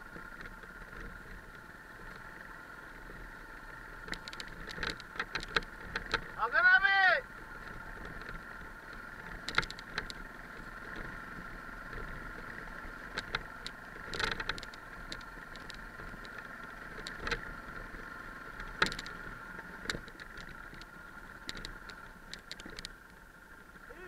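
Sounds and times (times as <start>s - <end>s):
motorcycle engine drone: 0.0s - 24.0s
stones knocking and rattling: 9.3s - 11.1s.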